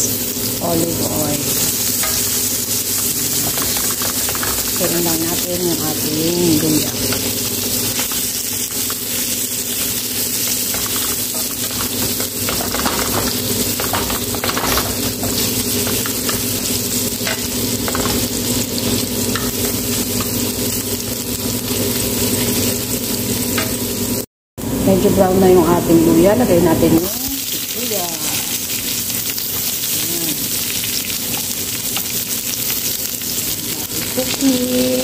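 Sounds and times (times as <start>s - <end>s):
ginger sizzling in oil: 0.0s - 24.3s, 26.4s - 35.0s.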